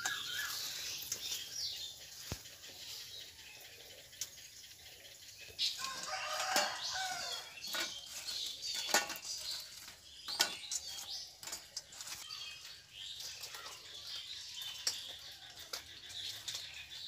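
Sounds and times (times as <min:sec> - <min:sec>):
birds chirping: 0:00.0 - 0:17.0.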